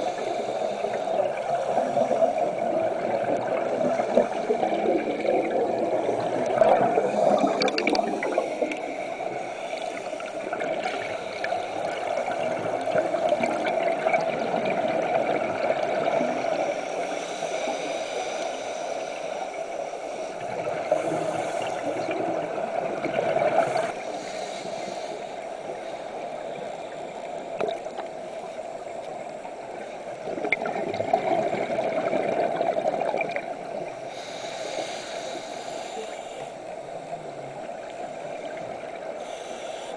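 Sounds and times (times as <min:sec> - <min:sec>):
muffled underwater water noise: 0:00.0 - 0:39.9
gurgling exhaled bubbles: 0:01.1 - 0:09.0, 0:10.3 - 0:16.7, 0:20.5 - 0:24.0, 0:30.2 - 0:34.0.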